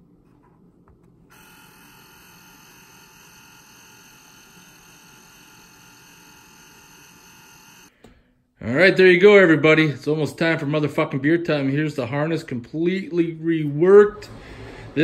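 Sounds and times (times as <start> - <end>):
label maker electric whine: 1.3 - 8.0.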